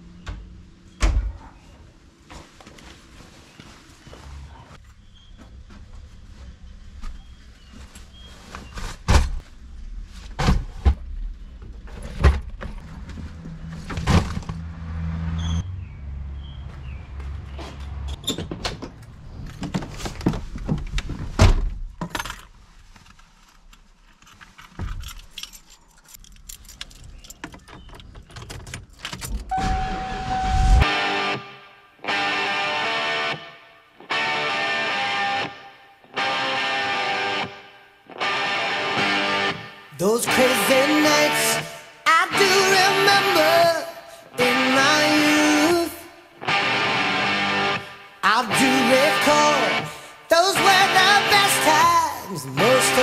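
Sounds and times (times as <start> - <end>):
doors and cargo thumping: 16.8 - 22.1
keys jangling: 24.3 - 29.5
steady electronic tone: 29.5 - 31.7
music: 30.8 - 53.0.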